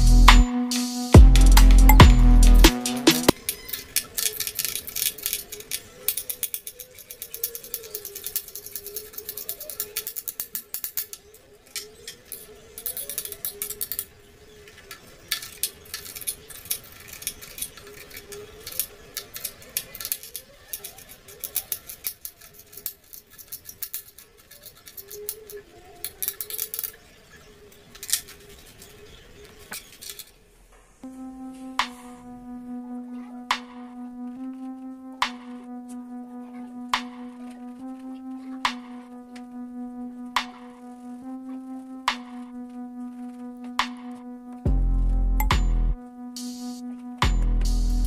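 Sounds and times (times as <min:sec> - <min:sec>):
faint background music: 0:00.0 - 0:48.0.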